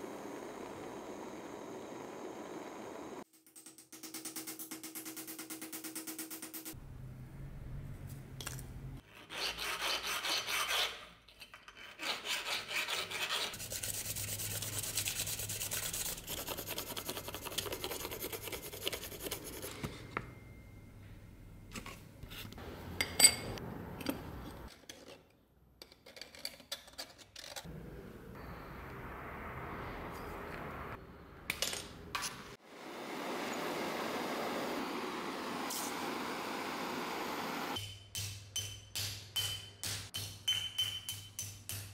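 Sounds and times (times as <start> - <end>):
pencil scratching on paper: 12.0 - 19.8.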